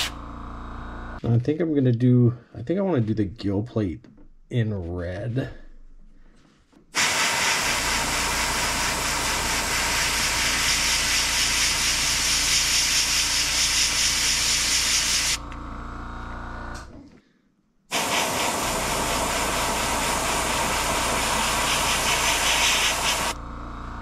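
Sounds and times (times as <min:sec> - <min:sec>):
airbrush hissing: 0:07.0 - 0:15.4, 0:17.9 - 0:23.4.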